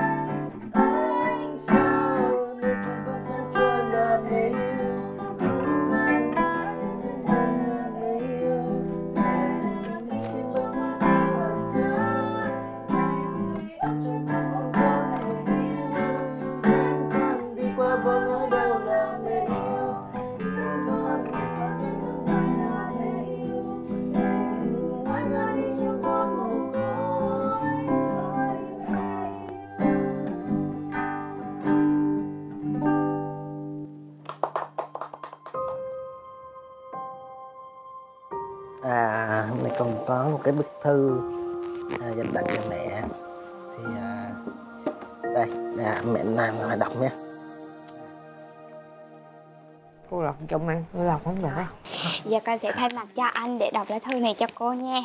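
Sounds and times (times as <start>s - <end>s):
acoustic guitar strumming: 0.0s - 34.2s, 38.6s - 51.9s
man singing: 17.3s - 20.1s, 38.8s - 41.2s, 41.9s - 44.6s, 45.2s - 47.3s.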